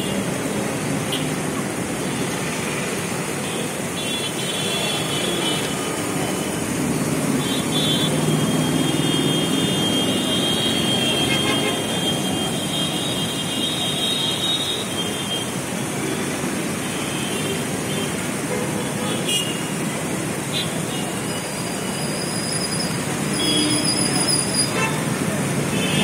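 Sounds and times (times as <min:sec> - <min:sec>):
road traffic: 0:00.0 - 0:26.0
car horn toot: 0:07.7 - 0:14.6.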